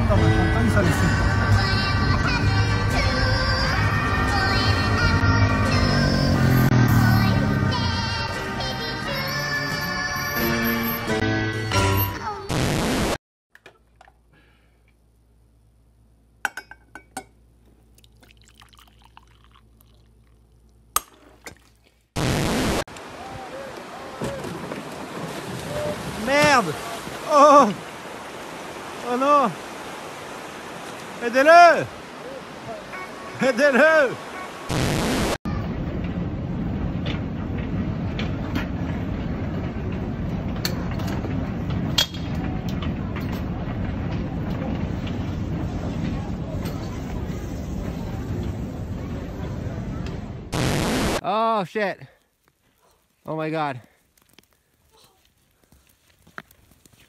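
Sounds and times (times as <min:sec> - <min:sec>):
coffee pouring: 0:18.0 - 0:20.8
baggage carousel rumble: 0:35.5 - 0:50.5.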